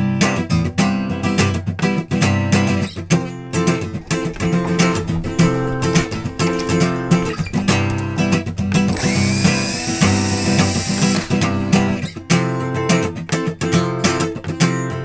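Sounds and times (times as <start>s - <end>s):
acoustic guitar strumming: 3.7s - 12.9s.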